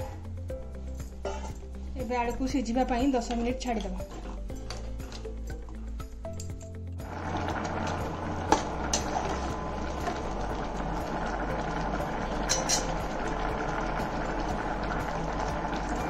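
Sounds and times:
water boiling and bubbling: 0:07.0 - 0:16.0
metal spatula clinking on pot: 0:12.5 - 0:13.0.

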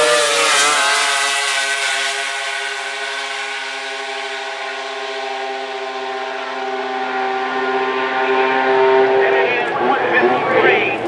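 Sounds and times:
snowmobile engines droning: 0:00.0 - 0:11.0.

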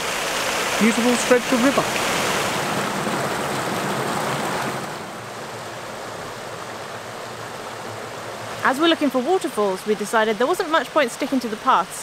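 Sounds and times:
river rushing over cascades: 0:00.0 - 0:12.0.

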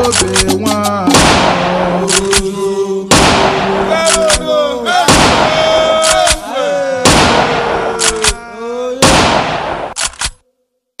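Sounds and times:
loud bangs: 0:01.0 - 0:02.4, 0:03.1 - 0:04.4, 0:05.0 - 0:06.4, 0:07.0 - 0:08.3, 0:09.0 - 0:10.0.

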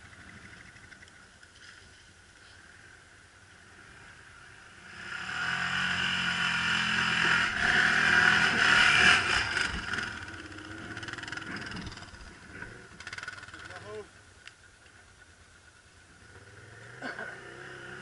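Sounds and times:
quad bike engine revving: 0:03.7 - 0:14.0, 0:16.2 - 0:18.0.

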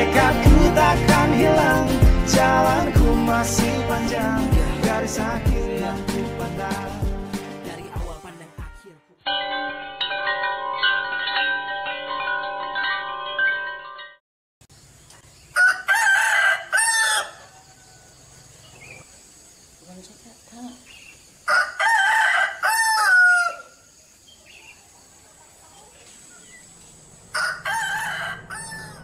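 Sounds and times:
chime ringing: 0:09.3 - 0:14.2
rooster crowing: 0:15.5 - 0:18.6, 0:21.4 - 0:24.0, 0:27.2 - 0:29.0.

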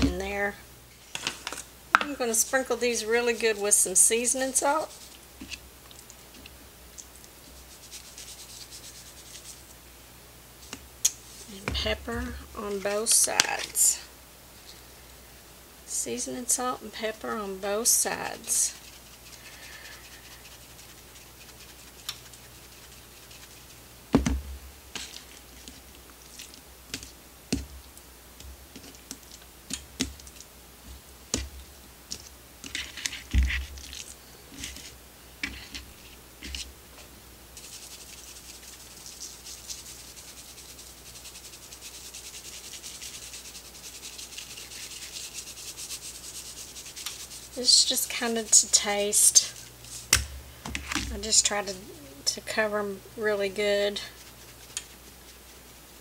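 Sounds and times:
steady hiss: 0:00.0 - 0:56.0
salt and pepper shaken: 0:02.1 - 0:05.2, 0:07.4 - 0:09.7, 0:18.0 - 0:23.9, 0:37.6 - 0:50.2, 0:54.0 - 0:56.0.

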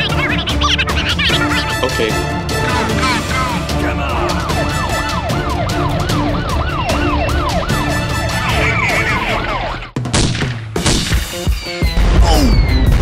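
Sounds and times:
siren yelping: 0:00.0 - 0:10.0
background music: 0:00.0 - 0:13.0.

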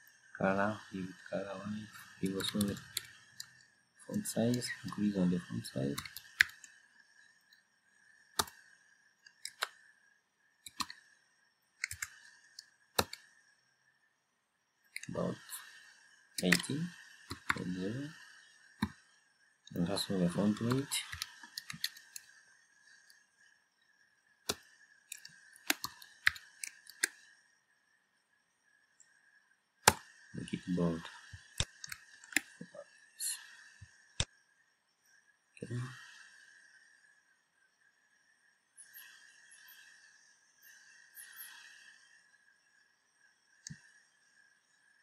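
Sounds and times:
faint high-pitched hum: 0:00.0 - 0:45.0
computer keyboard typing: 0:01.9 - 0:03.5, 0:05.7 - 0:06.7, 0:08.4 - 0:08.6, 0:09.4 - 0:09.7, 0:10.7 - 0:10.9, 0:11.8 - 0:12.2, 0:13.0 - 0:13.2, 0:16.4 - 0:16.7, 0:17.3 - 0:17.7, 0:19.7 - 0:22.2, 0:24.5 - 0:27.1.

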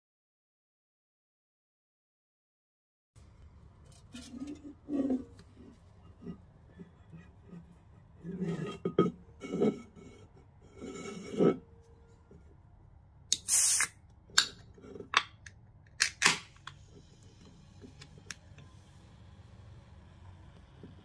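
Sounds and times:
can opening with hiss: 0:13.3 - 0:14.6, 0:16.0 - 0:16.9.

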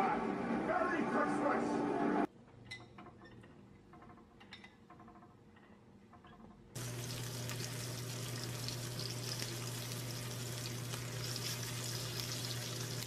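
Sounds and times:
low steady hum: 0:06.8 - 0:13.0
steak sizzling in a frying pan: 0:06.8 - 0:13.0.

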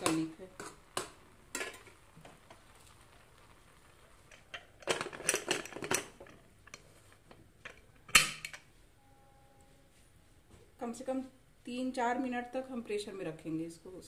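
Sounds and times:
metal lid clinking and scraping: 0:01.5 - 0:01.9, 0:04.3 - 0:06.9, 0:07.6 - 0:08.7.

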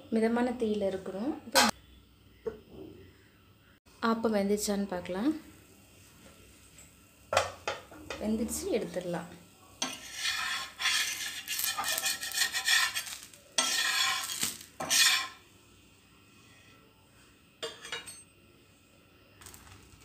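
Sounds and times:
metal spatula scraping iron pan: 0:09.8 - 0:15.4.

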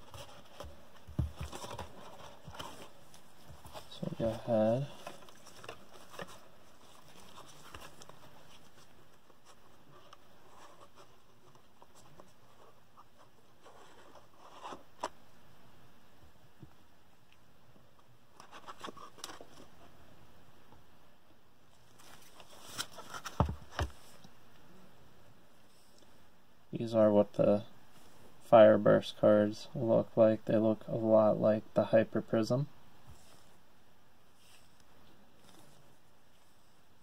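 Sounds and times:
handling cards and cardboard box: 0:00.0 - 0:15.2, 0:18.4 - 0:19.8, 0:21.8 - 0:24.2.

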